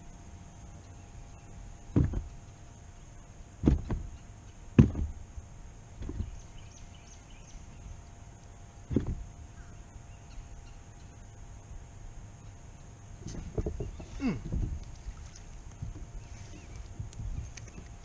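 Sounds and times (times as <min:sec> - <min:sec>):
low thumps against kayak: 0:01.9 - 0:02.3, 0:03.6 - 0:05.2, 0:06.0 - 0:06.4, 0:08.9 - 0:09.3, 0:13.2 - 0:16.1.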